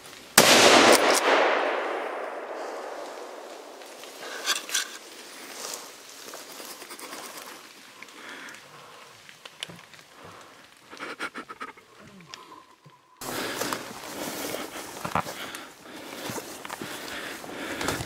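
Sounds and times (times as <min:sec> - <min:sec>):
rifle shot echo: 0:00.4 - 0:04.0
light rustling: 0:03.8 - 0:10.7.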